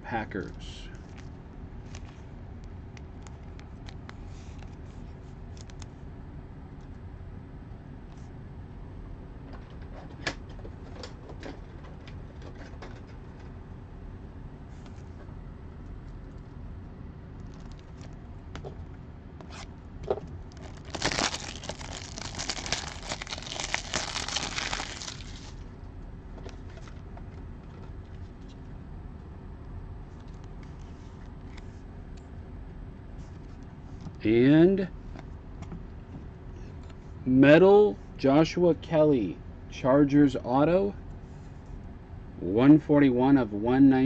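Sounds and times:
wrapper tearing and crinkling: 0:20.5 - 0:25.6.

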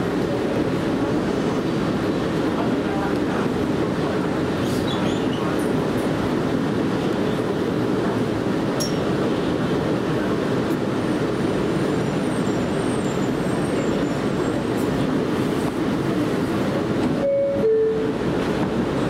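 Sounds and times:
subway car interior hum: 0:00.0 - 0:19.0.

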